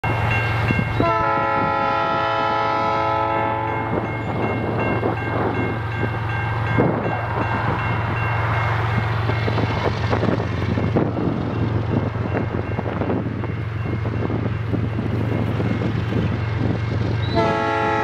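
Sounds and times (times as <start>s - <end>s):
locomotive horn blast: 1.0s - 4.0s, 17.3s - 18.0s.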